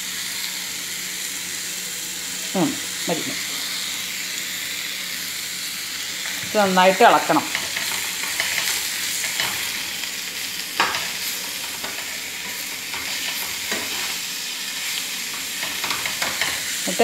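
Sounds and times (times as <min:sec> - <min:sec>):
chicken sizzling in a frying pan: 0:00.0 - 0:17.0
spoon scraping a pan: 0:07.4 - 0:10.0, 0:10.8 - 0:16.8.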